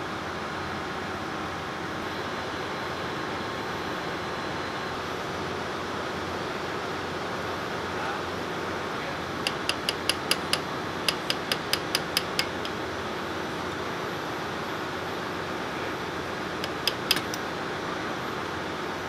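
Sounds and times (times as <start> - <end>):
engine room machinery noise: 0.2 - 19.0
hammer tapping on metal: 9.4 - 12.8, 16.6 - 17.4.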